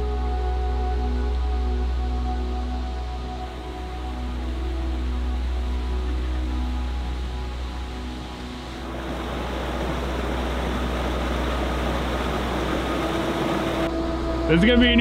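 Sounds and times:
soft background music: 0:00.0 - 0:15.0
steady rushing noise: 0:07.5 - 0:14.0.

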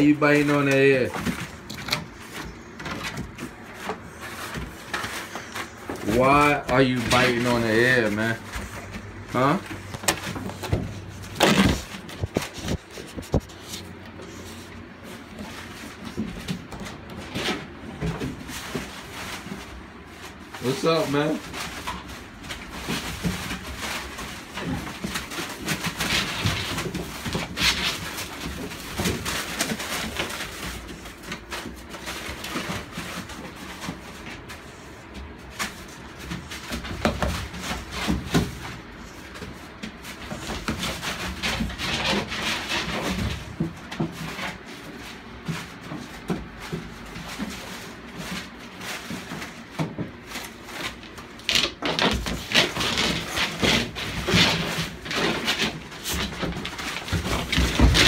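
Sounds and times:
puppy noises: 0:00.0 - 0:18.0.

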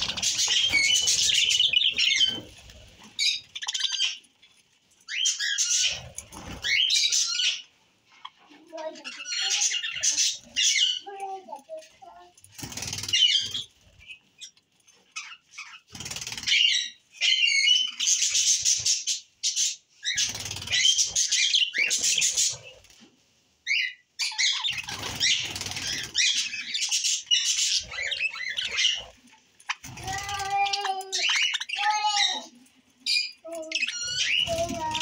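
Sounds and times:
budgerigars chirping: 0:00.0 - 0:04.3, 0:23.7 - 0:29.9.

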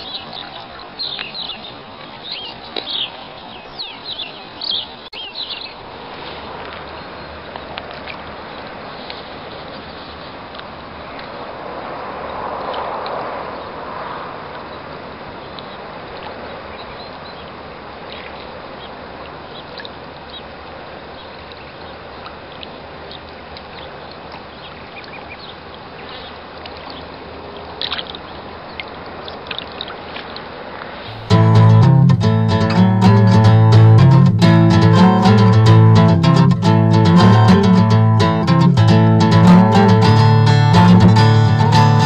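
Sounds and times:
outdoor background hiss: 0:00.0 - 0:42.0
acoustic guitar music: 0:31.1 - 0:42.0.

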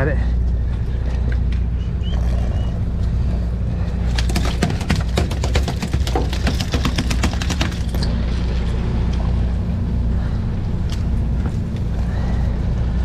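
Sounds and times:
boat engine humming: 0:00.0 - 0:13.0
fish tail beating on deck: 0:04.1 - 0:07.9.

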